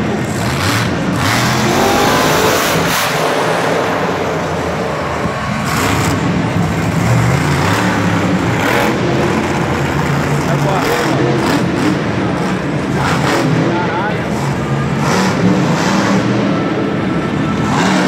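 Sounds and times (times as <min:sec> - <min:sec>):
truck engine revving: 0:00.0 - 0:18.0.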